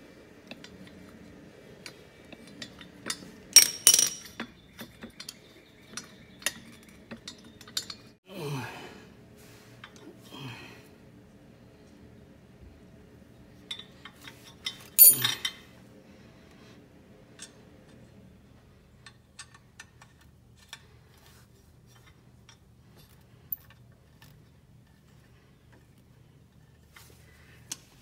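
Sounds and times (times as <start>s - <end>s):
metallic clank with ring: 15.0s - 15.6s.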